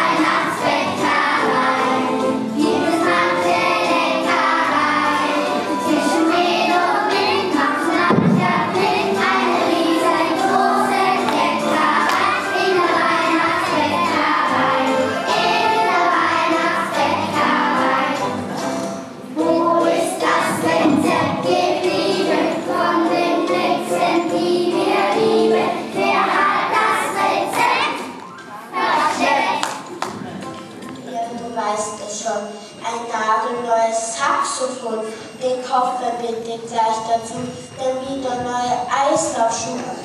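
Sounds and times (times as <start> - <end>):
children's choir singing: 0.0 - 30.4.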